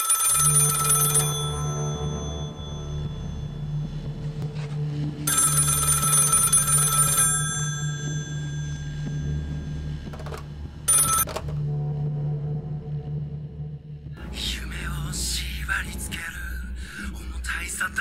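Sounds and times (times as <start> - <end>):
telephone bell ringing: 0.0 - 3.8, 5.3 - 11.5
telephone receiver picked up: 10.0 - 11.6.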